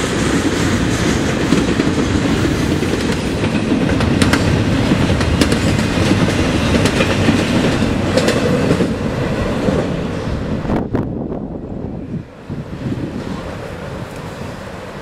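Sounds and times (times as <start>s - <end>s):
freight train rumbling: 0.0s - 15.0s
wheel clacks over rail joints: 2.7s - 9.0s.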